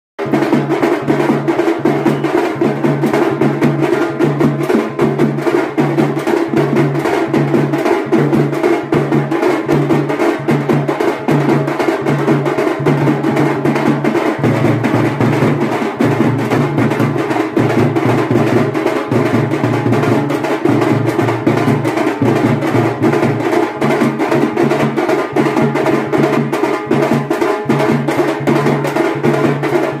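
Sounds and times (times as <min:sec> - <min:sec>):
fast dense drumming: 0:00.2 - 0:30.0.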